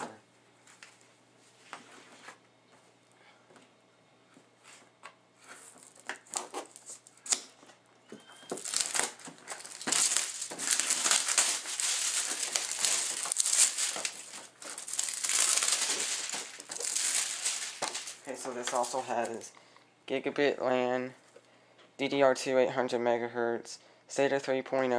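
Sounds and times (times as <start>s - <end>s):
plastic shrink wrap crinkling: 5.7s - 7.4s, 8.3s - 19.5s.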